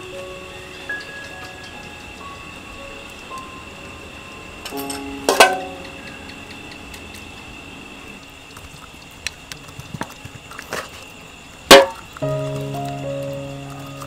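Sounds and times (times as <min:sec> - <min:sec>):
steady high-pitched tone: 0:00.0 - 0:08.3.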